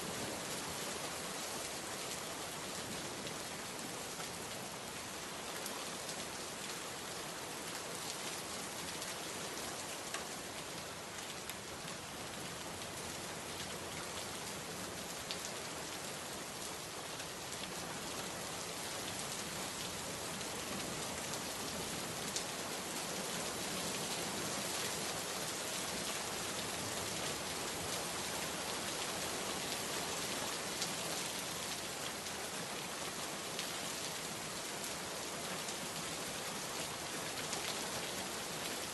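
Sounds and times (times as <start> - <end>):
steady rain hiss: 0.0 - 38.9
faint raindrop ticks: 10.0 - 10.3.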